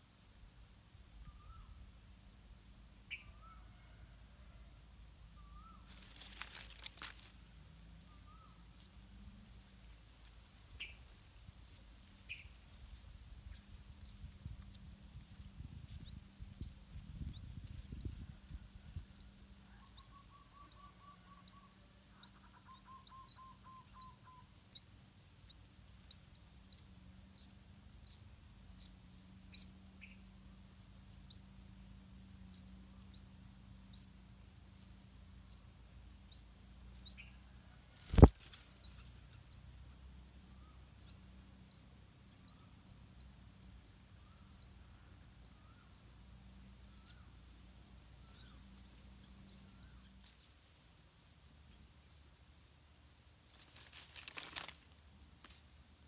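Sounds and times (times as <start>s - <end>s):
nestlings begging cheeps: 0.0s - 54.7s
brief rustle: 53.5s - 55.6s.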